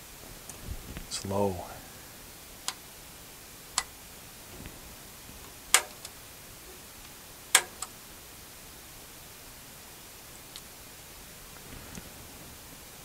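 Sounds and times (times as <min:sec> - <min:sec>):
faint steady hiss: 0:00.0 - 0:13.0
sharp clicks: 0:05.7 - 0:06.2, 0:07.6 - 0:07.9.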